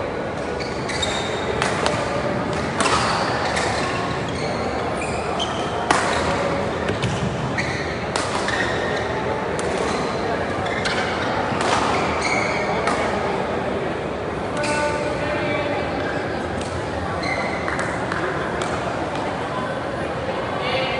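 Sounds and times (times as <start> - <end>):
echoing hall background: 0.0 - 20.9
shoes squeaking on court: 0.4 - 2.0, 2.6 - 13.0, 17.1 - 18.1
racket striking shuttlecock: 5.8 - 7.2, 8.1 - 8.6.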